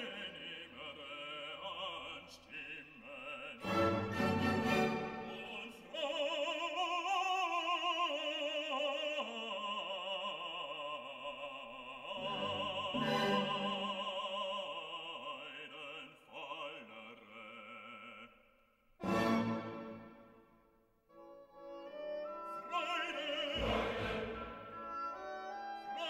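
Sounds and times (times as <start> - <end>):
operatic voice singing: 0.0 - 19.7, 21.9 - 26.0
orchestral accompaniment: 3.6 - 5.7, 12.2 - 14.1, 19.0 - 20.4, 21.3 - 25.8.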